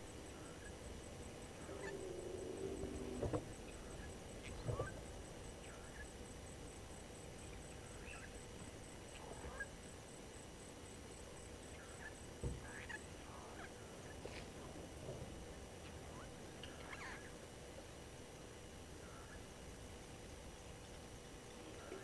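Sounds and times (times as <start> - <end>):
background hiss: 0.0 - 22.0
faint bird calls: 1.4 - 6.1, 7.4 - 8.4, 11.6 - 14.4, 15.8 - 17.4.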